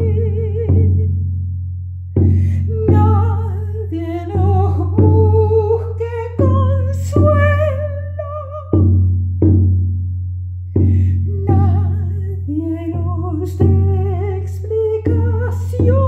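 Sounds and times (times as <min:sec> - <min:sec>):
person singing with vibrato: 0:00.0 - 0:01.1, 0:02.4 - 0:08.9, 0:10.9 - 0:16.0.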